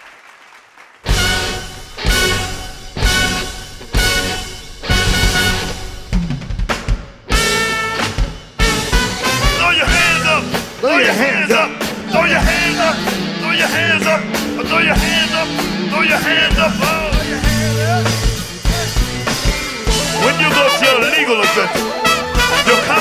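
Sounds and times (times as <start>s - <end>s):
horn section: 1.0s - 6.1s, 7.3s - 23.0s
drum kit: 1.0s - 23.0s
singers: 9.2s - 23.0s
electric bass: 11.7s - 20.4s.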